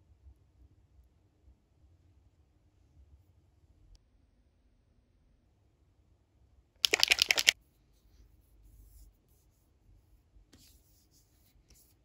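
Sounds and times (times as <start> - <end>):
bottle rustling and clicking: 6.8 - 7.6
plastic bottle rattling: 6.8 - 7.6.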